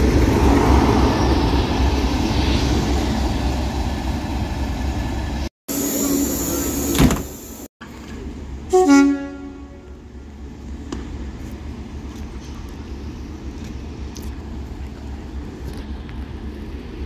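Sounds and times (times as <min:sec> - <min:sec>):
steady low rumble: 0:00.0 - 0:05.5
two-tone train horn blast: 0:08.7 - 0:10.1.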